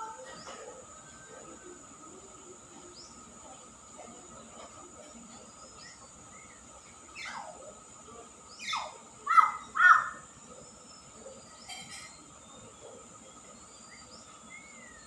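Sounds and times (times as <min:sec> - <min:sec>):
myna whistling and calling: 0:08.6 - 0:10.2.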